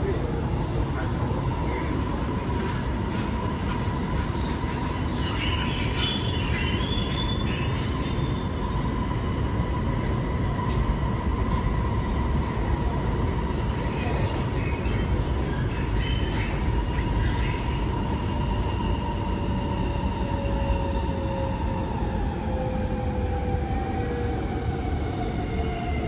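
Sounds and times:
wheels rumbling on rail: 0.0 - 26.0
high wheel squeal: 4.4 - 8.6.

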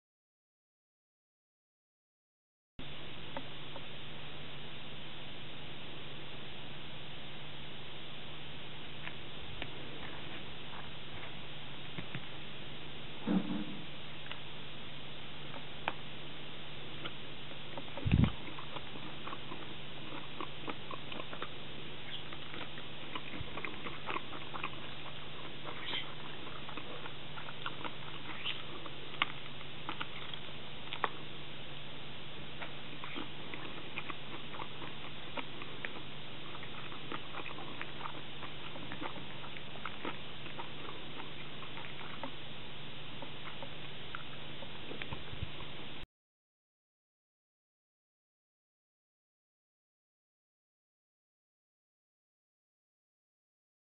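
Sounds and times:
low hum: 2.8 - 46.0
food crunching while eating: 17.0 - 31.4, 32.5 - 45.8.

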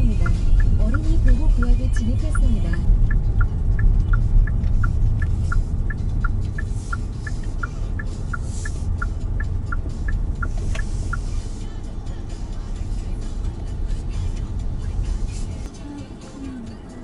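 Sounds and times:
car turn signal ticking: 0.0 - 17.0
road and engine rumble: 0.0 - 17.0.

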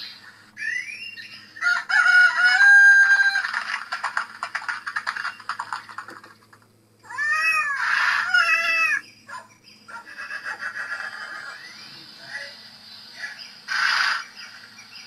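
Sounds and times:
cat meow: 7.1 - 9.0.

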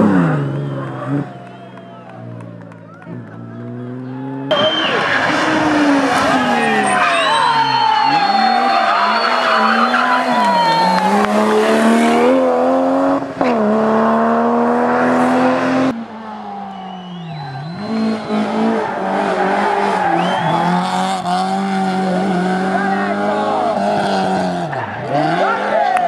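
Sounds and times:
rally car engine revving: 0.0 - 16.1, 17.0 - 26.0
tyres squealing: 4.5 - 11.2.

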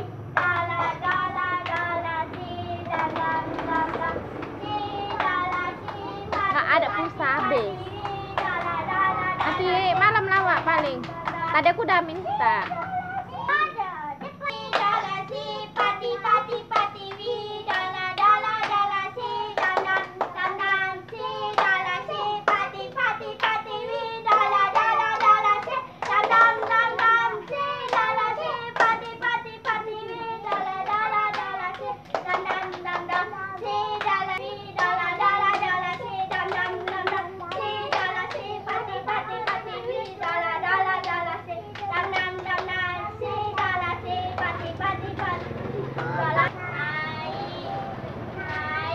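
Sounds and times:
children singing: 0.0 - 7.2, 12.8 - 48.9
hand claps in a clapping game: 0.0 - 46.6, 48.4 - 48.9.

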